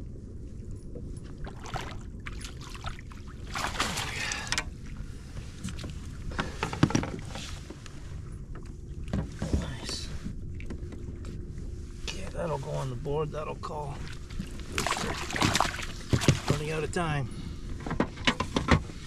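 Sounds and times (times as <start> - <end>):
wind and water rush: 0.0 - 18.0
water splashing: 1.4 - 5.0, 13.8 - 17.0
clicks and knock against kayak: 5.6 - 7.8, 17.8 - 19.0.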